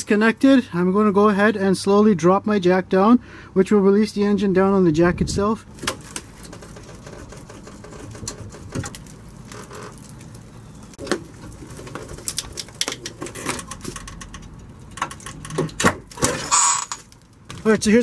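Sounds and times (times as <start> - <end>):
floor jack clicking and creaking: 5.8 - 10.1, 11.0 - 17.8.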